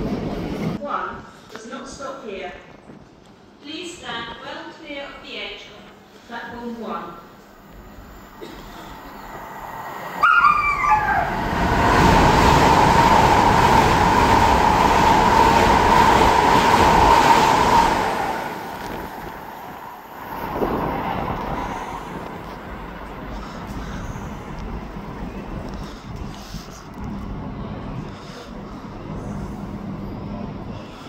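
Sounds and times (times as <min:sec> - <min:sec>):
train passing at speed: 0:07.1 - 0:31.0.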